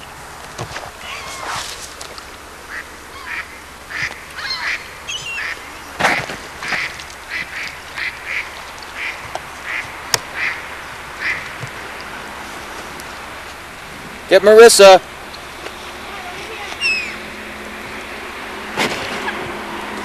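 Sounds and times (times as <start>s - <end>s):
ducks quacking: 2.6s - 11.9s.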